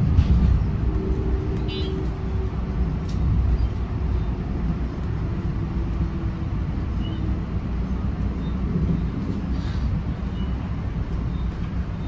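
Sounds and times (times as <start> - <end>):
train coach rumbling on track: 0.0 - 12.0.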